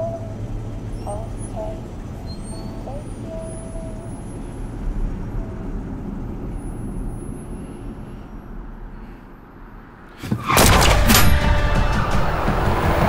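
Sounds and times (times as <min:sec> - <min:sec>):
car interior road noise: 0:00.0 - 0:13.0
sudden loud hit: 0:10.2 - 0:13.0.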